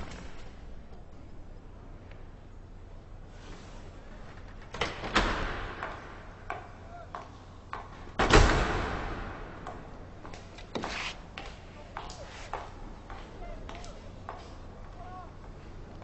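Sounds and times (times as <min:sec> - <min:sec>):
loud echoing knocks: 0:05.1 - 0:06.7, 0:07.8 - 0:09.9.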